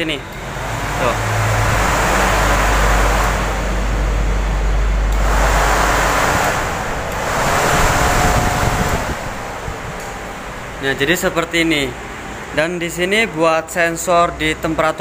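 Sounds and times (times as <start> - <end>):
low hum: 0.0 - 11.5
cooling fan rushing air: 0.0 - 15.0.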